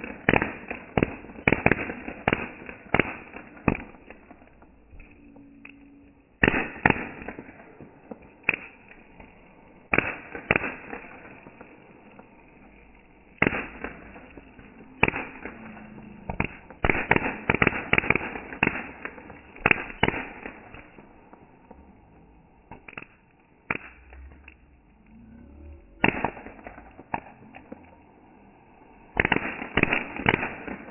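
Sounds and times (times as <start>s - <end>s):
firework bangs and pops: 0.0s - 5.1s, 6.3s - 25.0s, 25.9s - 28.2s, 29.0s - 30.9s
firework hiss: 6.4s - 25.0s, 25.8s - 30.9s.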